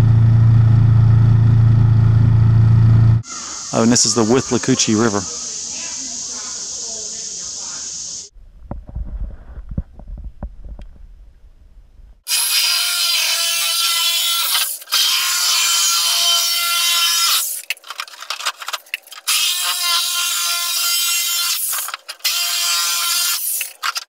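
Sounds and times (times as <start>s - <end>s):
electric saw cutting plastic drum: 12.3s - 24.0s.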